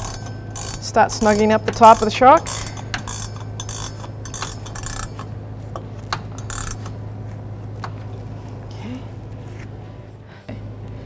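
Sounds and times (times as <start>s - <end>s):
ratcheting wrench clicking: 0.0s - 7.0s
steady low hum: 0.0s - 11.0s.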